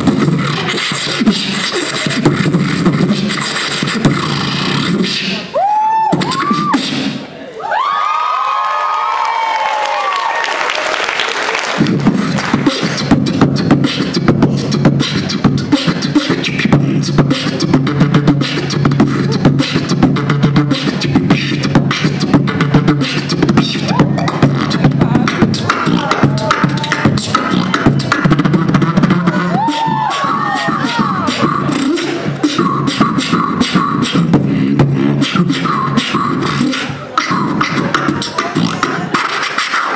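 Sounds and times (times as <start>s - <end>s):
beatboxing into a microphone: 0.0s - 7.5s, 11.7s - 39.9s
crowd noise: 0.0s - 39.9s
rising and falling vocal tones: 11.8s - 39.1s.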